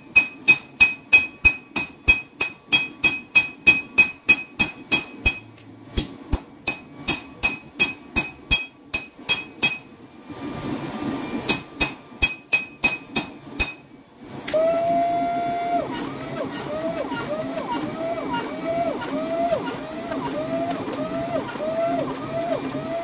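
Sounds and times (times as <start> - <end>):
hammer striking metal on anvil: 0.1 - 9.9, 11.5 - 13.8
hydraulic press humming: 14.4 - 23.0.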